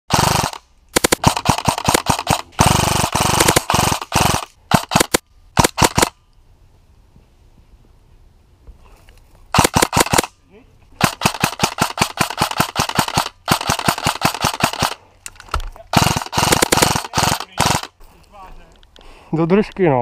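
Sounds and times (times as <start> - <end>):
airsoft guns firing: 0.1 - 6.1, 9.5 - 10.3, 11.0 - 15.0, 15.9 - 17.9.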